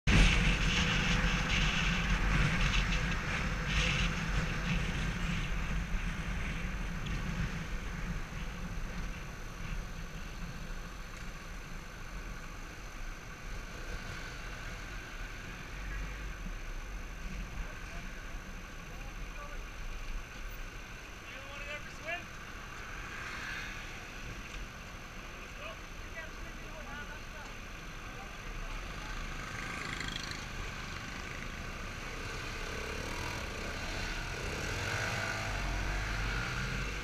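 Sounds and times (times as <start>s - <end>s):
wind rumble on microphone: 0.1s - 11.4s
motorcycle engine drone: 0.1s - 37.0s.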